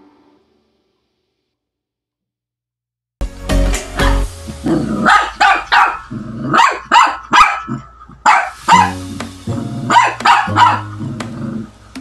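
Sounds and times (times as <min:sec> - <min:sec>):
background music low notes: 0:03.2 - 0:06.6, 0:08.1 - 0:12.0
small dog barking: 0:05.0 - 0:09.0, 0:09.9 - 0:10.9.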